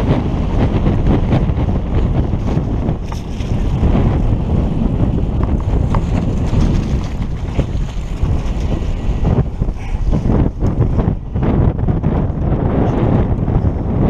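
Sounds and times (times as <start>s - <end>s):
bike clicks and rattles: 0.0s - 11.2s
wind buffeting microphone: 0.0s - 14.0s.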